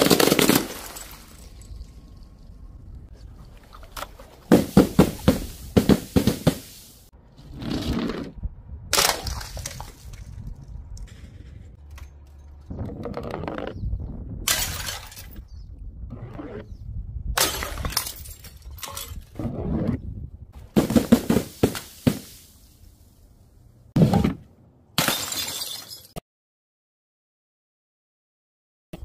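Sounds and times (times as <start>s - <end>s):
containers smashing on stone: 0.0s - 1.9s, 4.5s - 6.8s, 14.5s - 15.4s, 20.8s - 22.5s, 25.0s - 26.2s
glass breaking: 0.0s - 2.0s, 14.5s - 15.4s, 17.4s - 19.2s, 25.0s - 26.2s.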